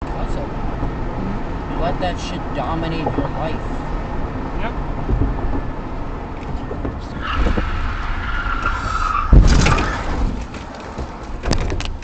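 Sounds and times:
road noise rumble: 0.0 - 12.0
car tires squealing: 6.6 - 10.4
loud thump: 8.6 - 11.8.

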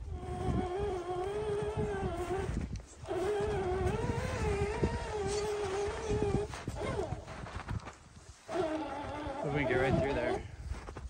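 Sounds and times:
electric motor and gear whine: 0.0 - 11.0
snow crunching: 0.9 - 11.0.

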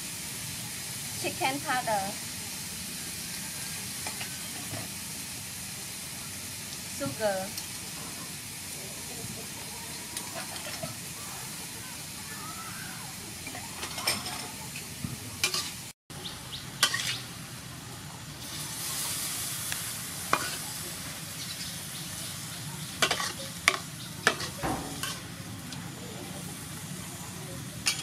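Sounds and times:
meat sizzling in a wok: 0.0 - 28.0
spatula scraping a pan: 10.2 - 11.0, 16.8 - 17.2, 23.0 - 25.3.

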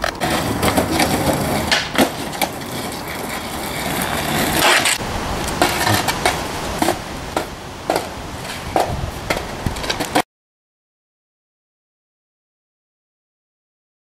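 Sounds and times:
skateboard clatter and scrape: 0.0 - 10.2
skateboard knocking on bricks: 0.0 - 10.2.

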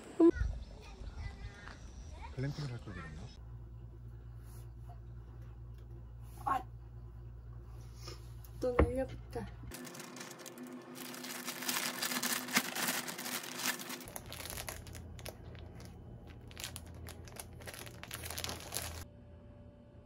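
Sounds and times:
plastic packaging crinkling: 9.7 - 19.0.

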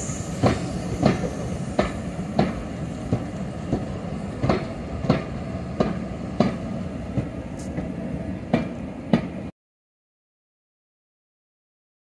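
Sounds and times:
train wheels clicking over rail joints: 0.0 - 9.4.

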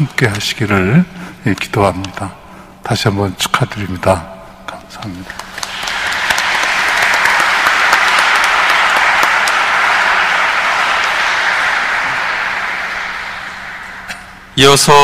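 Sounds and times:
congregation applauding: 5.3 - 15.0.

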